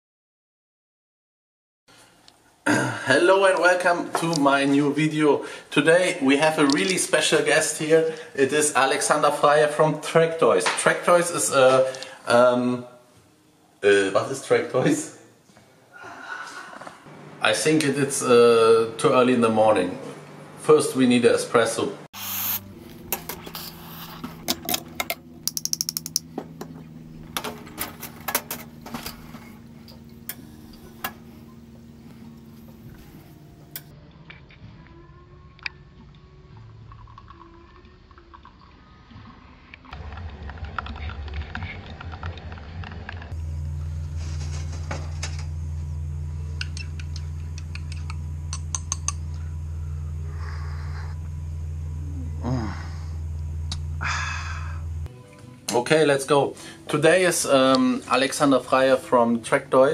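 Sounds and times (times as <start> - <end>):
espresso machine humming: 22.2 - 33.9, 43.3 - 55.1
cups and metal parts clicking: 24.4 - 31.2.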